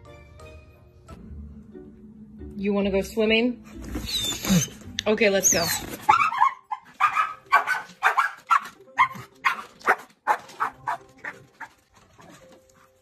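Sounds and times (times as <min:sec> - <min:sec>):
dog barking and yipping: 0:05.4 - 0:12.4.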